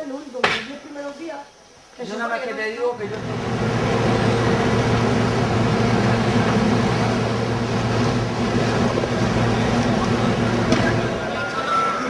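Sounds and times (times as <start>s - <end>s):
engine hum: 3.0s - 12.0s
street rumble: 3.0s - 12.0s.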